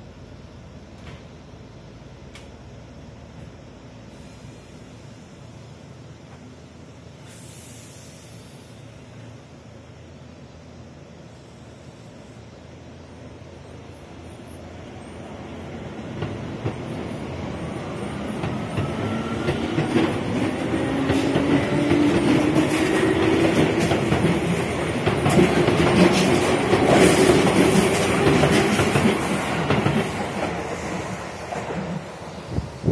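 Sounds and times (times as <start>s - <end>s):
electric train humming: 8.3s - 32.9s
train wheels clicking over rail joints: 16.1s - 32.2s.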